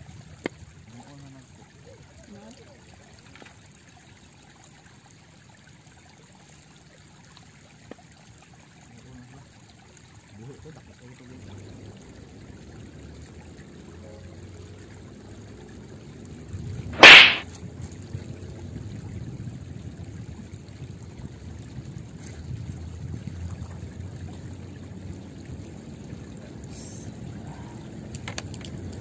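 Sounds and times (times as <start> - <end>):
water trickling: 0.0 - 16.9, 17.8 - 28.1
loud sharp burst: 17.0 - 17.4.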